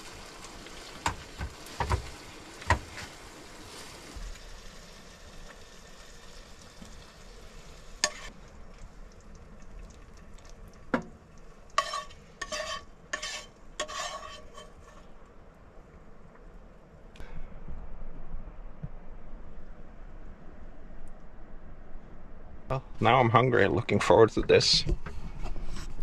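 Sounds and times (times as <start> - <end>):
faint sizzle: 0.0 - 17.4
spatula knocking on pan: 1.0 - 2.1
spatula scraping pan: 8.0 - 8.3, 11.7 - 15.2.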